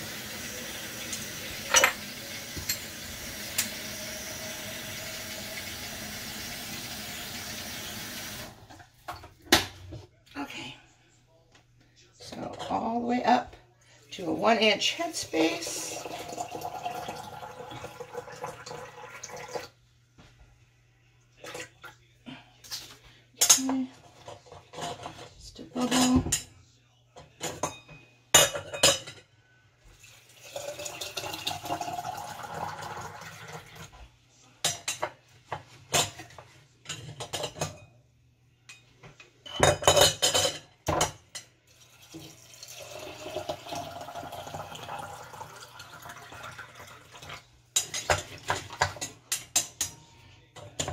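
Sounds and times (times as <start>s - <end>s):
liquid pouring into jars: 15.7s - 19.8s, 30.0s - 33.8s, 41.7s - 47.5s.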